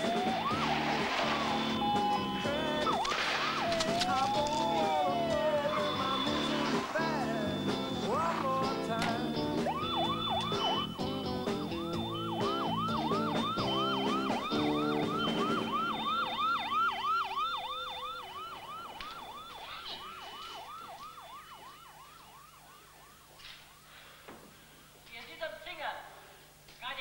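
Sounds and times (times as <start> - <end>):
music: 0.0 - 16.5
police siren yelping: 0.0 - 23.9.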